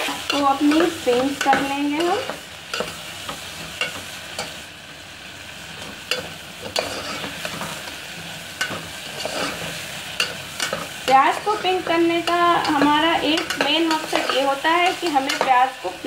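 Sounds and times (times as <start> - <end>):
onions sizzling in hot oil: 0.0 - 16.0
spatula scraping and knocking pot: 6.1 - 7.8, 8.6 - 15.6.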